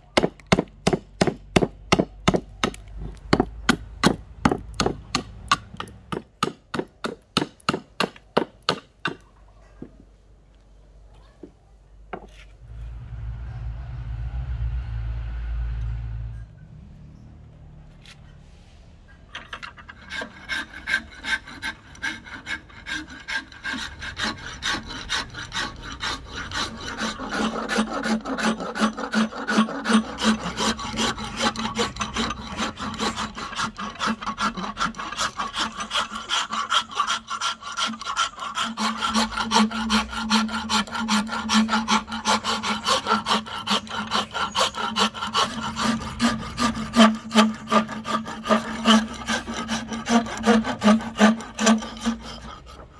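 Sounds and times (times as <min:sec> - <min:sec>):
wood rasp scraping strokes: 0:19.4 - 0:52.9.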